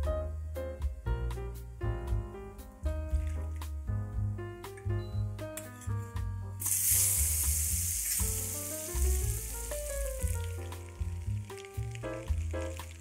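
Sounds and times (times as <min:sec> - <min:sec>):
butter sizzling in a metal pan: 0:06.6 - 0:13.0.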